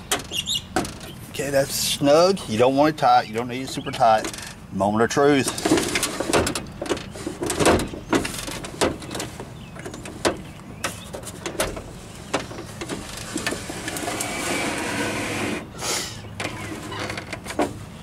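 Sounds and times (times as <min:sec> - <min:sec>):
window glass sliding down: 0:13.0 - 0:15.8.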